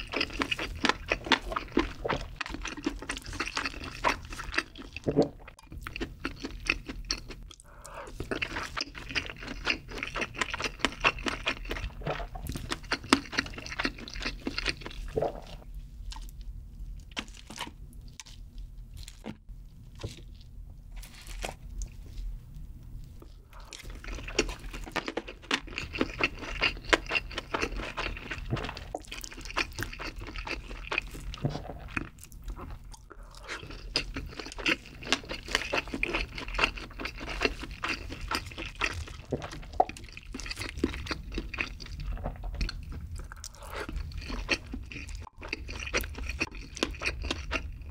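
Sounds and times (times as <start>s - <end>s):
wet crunchy chewing: 0.0s - 22.3s, 23.0s - 47.9s.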